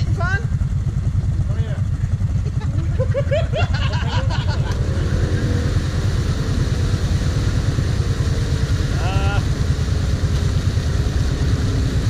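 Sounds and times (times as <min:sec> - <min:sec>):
quad engine idling: 0:00.0 - 0:12.0
person calling out: 0:08.9 - 0:09.5.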